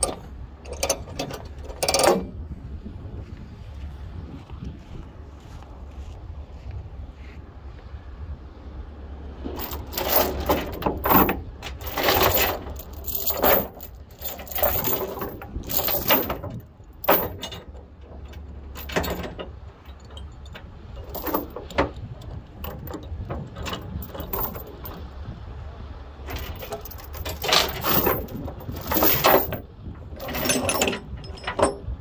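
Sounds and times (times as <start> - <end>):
chain clanking on wooden deck: 0.0 - 2.4, 9.5 - 25.4, 26.1 - 32.0.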